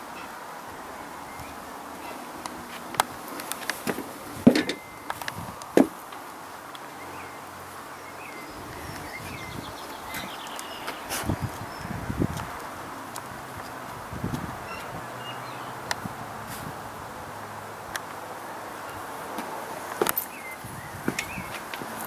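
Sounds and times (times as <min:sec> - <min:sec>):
footsteps on wooden deck: 0:01.4 - 0:04.8, 0:05.6 - 0:06.2, 0:20.9 - 0:22.0.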